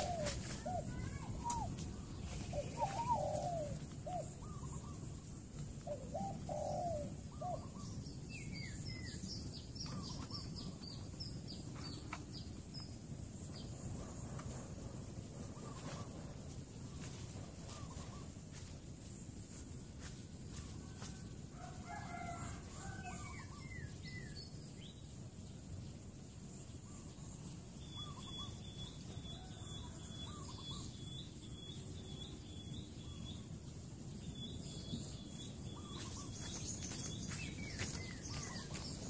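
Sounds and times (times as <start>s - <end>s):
birds calling: 0.0s - 12.9s, 15.4s - 18.4s, 34.3s - 39.0s.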